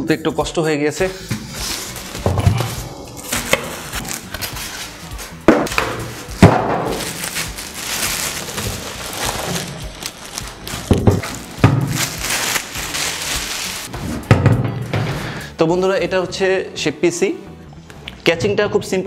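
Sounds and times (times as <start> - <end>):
plastic bag crinkling: 3.2 - 5.3, 6.0 - 13.9.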